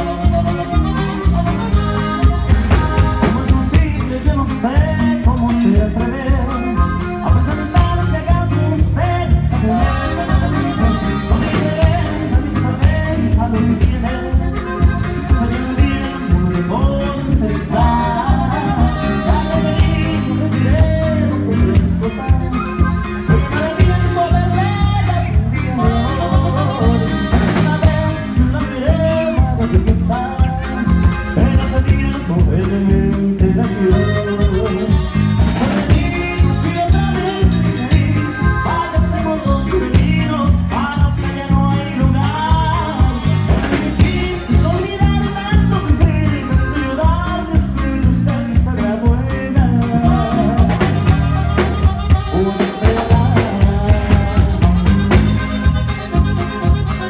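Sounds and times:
saxophone: 0.0 - 3.7, 9.6 - 13.0, 17.8 - 28.4, 33.7 - 39.0, 49.8 - 57.0
drum kit beat: 0.0 - 57.0
electric bass: 0.0 - 57.0
person singing: 0.0 - 57.0
strummed twelve-string guitar: 0.0 - 57.0.

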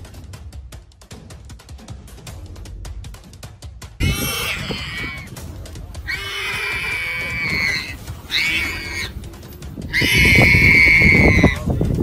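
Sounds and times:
warthog squealing: 4.0 - 5.3, 6.1 - 9.2, 9.9 - 11.7.

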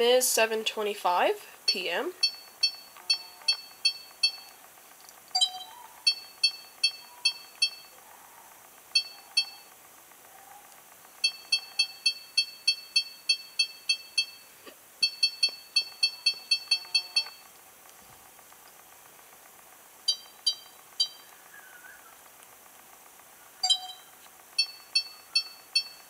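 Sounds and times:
short high touchscreen beeps: 5.4 - 7.9, 11.2 - 14.4, 15.0 - 17.4, 23.6 - 26.0.

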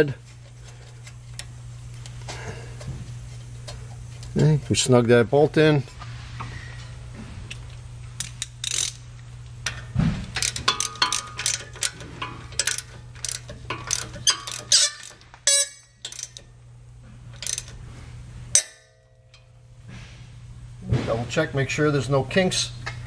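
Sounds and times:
hand ratchet clicking: 8.2 - 9.0, 10.4 - 16.5, 17.4 - 17.8.

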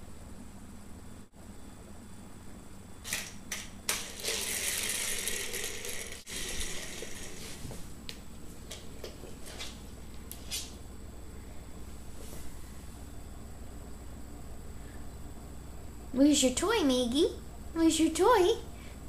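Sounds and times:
toy car clicking on wooden floor: 3.1 - 7.5
plastic wheels rattling on floor: 4.0 - 7.7.

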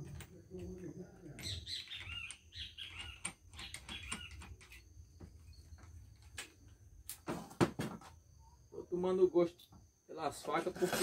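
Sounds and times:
small bird chirping: 0.6 - 6.1.

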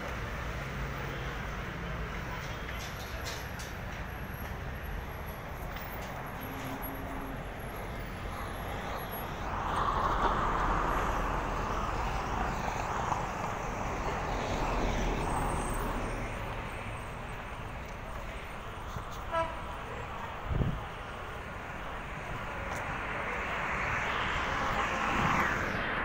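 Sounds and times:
short car horn toot: 19.3 - 19.6
vehicle passing: 21.4 - 26.0.

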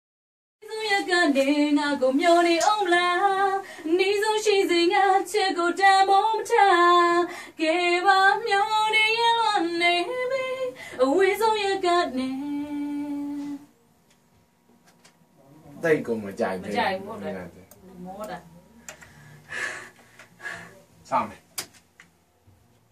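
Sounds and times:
woman singing: 0.6 - 13.7.

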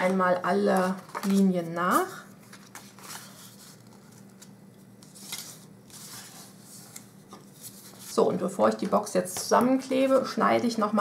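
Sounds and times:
paper rustling: 0.6 - 8.9.

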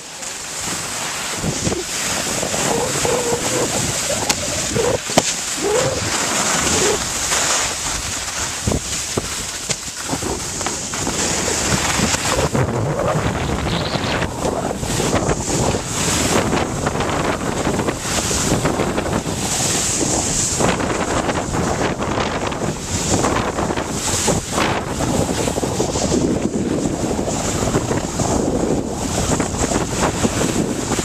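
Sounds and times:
skis scraping packed snow: 0.0 - 31.0
wind buffeting microphone: 0.0 - 31.0.

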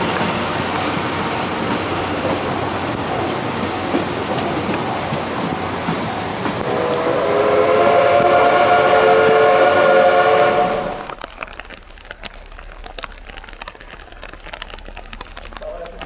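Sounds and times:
train coaches rolling on rails: 0.0 - 16.0
train whistle: 6.5 - 11.2.

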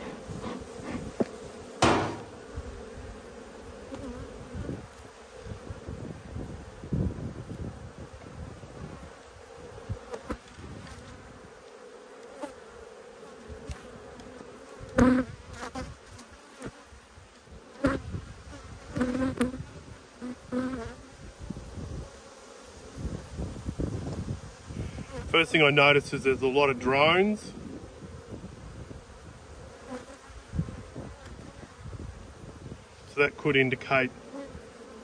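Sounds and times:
honeybees buzzing: 0.0 - 35.0
metal hive tool knocking and scraping: 0.1 - 2.4.

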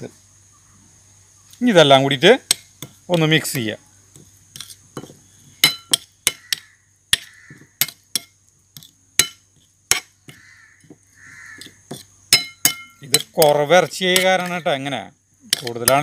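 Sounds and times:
spoon clinking on ceramic plate: 12.3 - 13.4.

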